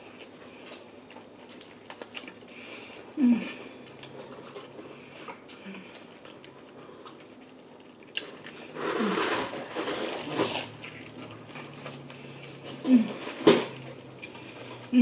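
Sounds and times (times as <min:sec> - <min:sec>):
soft chewing: 0:00.0 - 0:15.0
paper wrapper crinkling: 0:07.4 - 0:14.8.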